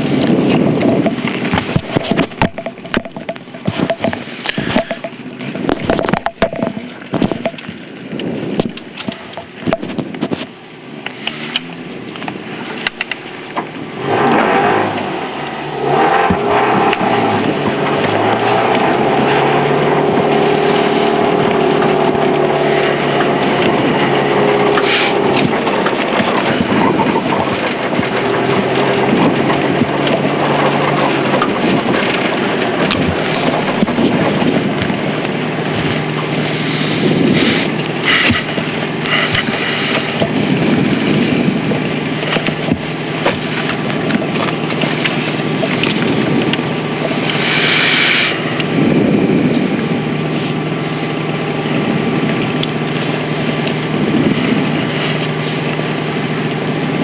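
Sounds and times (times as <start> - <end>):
car engine at low revs: 0.0 - 57.0.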